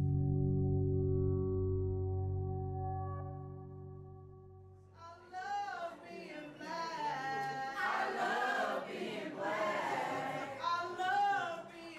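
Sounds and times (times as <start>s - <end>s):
choir singing: 5.9s - 11.7s.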